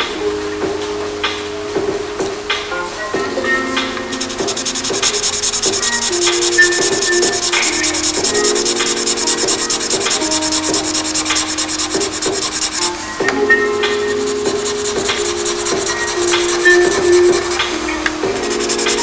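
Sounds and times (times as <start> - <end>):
background music: 0.0 - 19.0
felt-tip pen scratching on paper: 4.2 - 13.0, 14.1 - 17.6.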